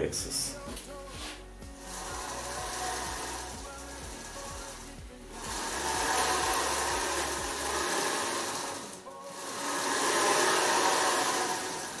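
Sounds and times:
machine motors whirring: 1.7s - 12.0s.

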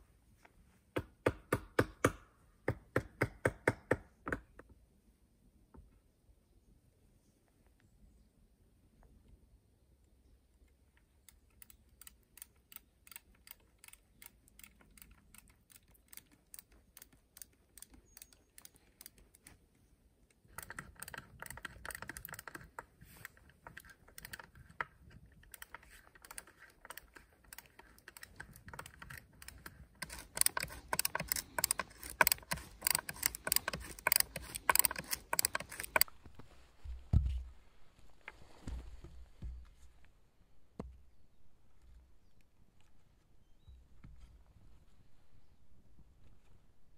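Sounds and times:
knife shaving wood: 20.6s - 36.2s.

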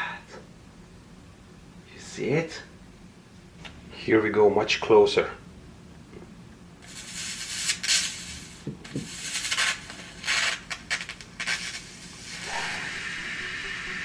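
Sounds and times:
electric arc hissing: 6.8s - 14.0s.

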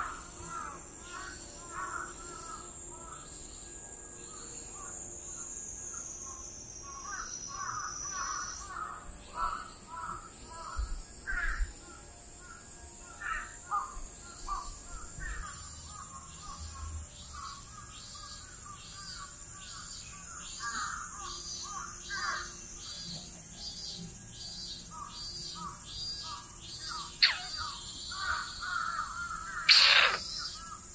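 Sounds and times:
high insect buzz: 0.0s - 30.9s
regular high chirp: 27.2s - 27.7s
crows cawing: 27.2s - 30.6s.

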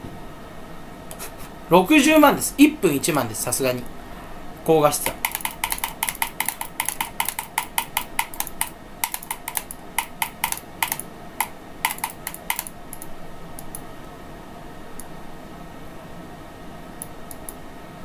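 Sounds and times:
typing on computer keyboard: 5.0s - 13.8s.

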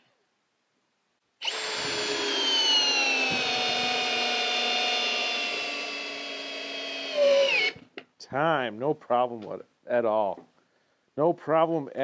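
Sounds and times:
drill driving screw into wood: 1.4s - 7.9s.

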